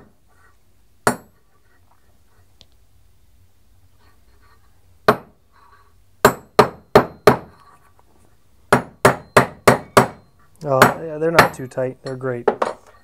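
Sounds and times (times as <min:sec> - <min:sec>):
hammer striking metal: 0:06.2 - 0:07.5, 0:08.7 - 0:12.8.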